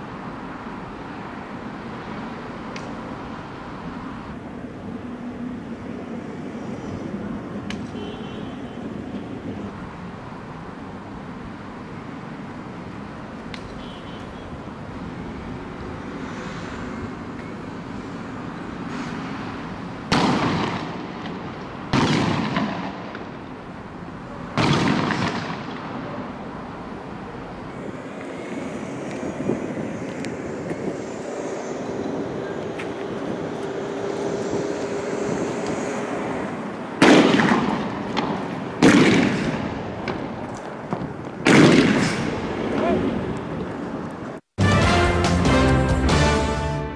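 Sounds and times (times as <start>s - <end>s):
loud bangs with echo: 37.0s - 39.9s, 41.4s - 42.4s.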